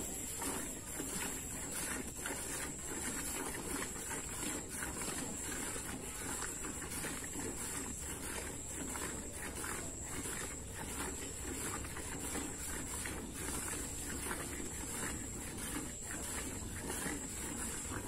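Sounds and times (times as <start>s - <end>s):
milk squirting into metal bucket: 0.4s - 18.0s.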